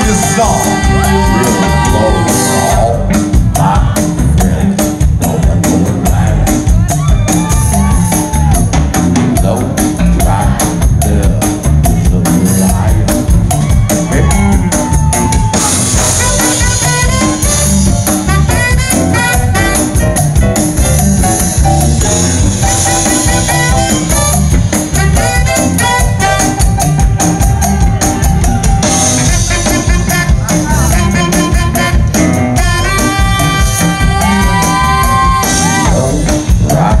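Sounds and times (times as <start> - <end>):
harmonica: 0.0 - 3.0, 21.0 - 36.3
saxophone: 0.0 - 3.2, 13.6 - 36.9
drum kit and bass groove: 0.0 - 37.0.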